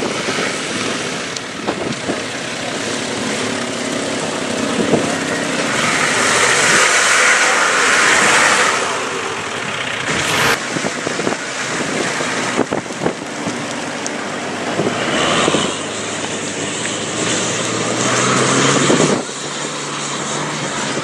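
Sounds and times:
diesel engine revving under load: 0:02.8 - 0:11.3.

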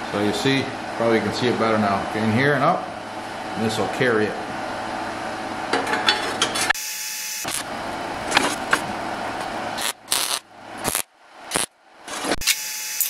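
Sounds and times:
welder arc crackling: 0:07.4 - 0:11.7.

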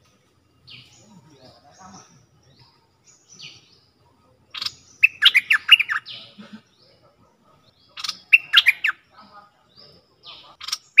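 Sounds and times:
faint bird chirp: 0:00.0 - 0:11.0
bird singing bubbly notes: 0:04.5 - 0:06.2, 0:07.8 - 0:09.1.

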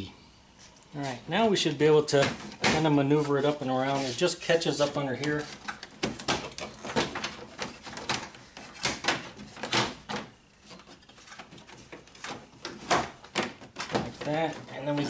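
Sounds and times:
plastic cover scraping against car body: 0:03.1 - 0:05.6.

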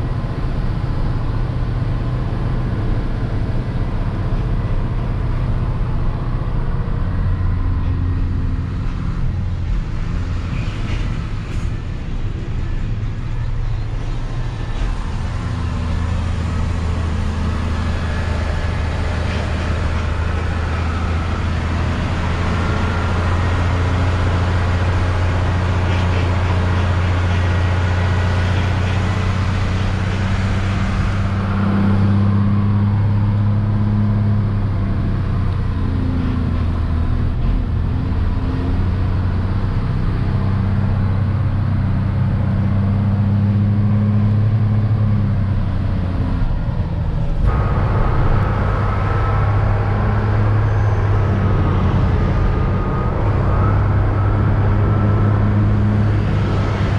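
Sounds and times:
truck diesel engine running: 0:00.0 - 0:56.9
tyre and road noise: 0:00.0 - 0:56.9.

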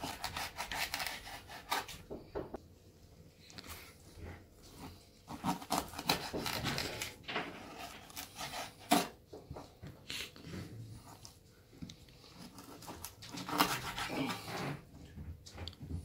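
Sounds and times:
knife scraping cutting board: 0:00.0 - 0:02.0, 0:04.7 - 0:09.2, 0:12.3 - 0:14.8.

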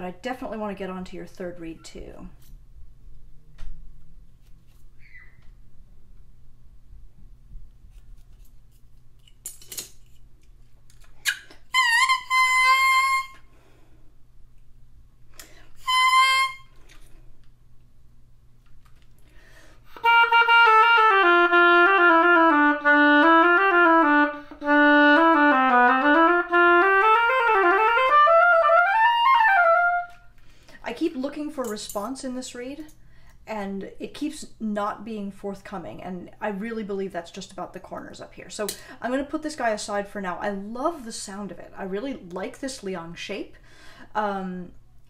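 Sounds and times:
oboe playing slurred notes: 0:11.3 - 0:13.5, 0:15.8 - 0:16.8, 0:19.9 - 0:30.3.

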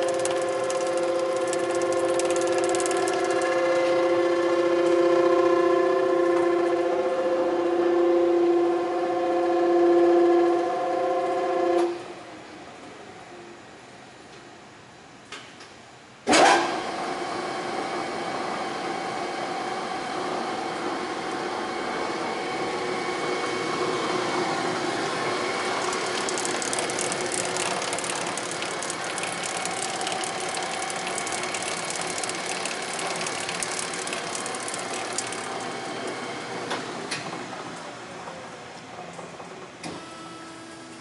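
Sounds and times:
fast rattling clicking: 0:00.0 - 0:03.6, 0:25.8 - 0:35.6
mixer starting clunk: 0:00.0 - 0:05.2, 0:23.1 - 0:37.6
mixer gear-drive whine: 0:00.0 - 0:13.6, 0:16.3 - 0:41.0.

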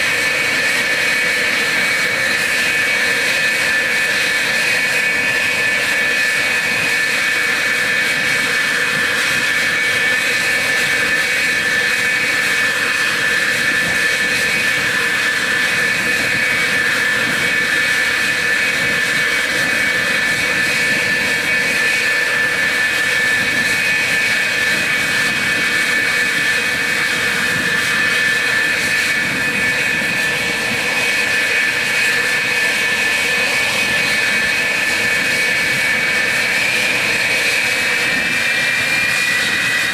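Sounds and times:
jet engines idling whine: 0:00.0 - 0:39.9.

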